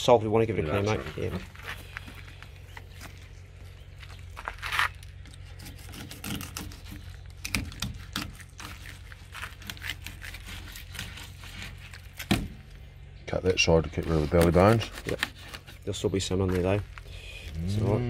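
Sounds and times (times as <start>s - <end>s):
knife scraping fish: 5.3s - 12.2s, 14.1s - 15.9s.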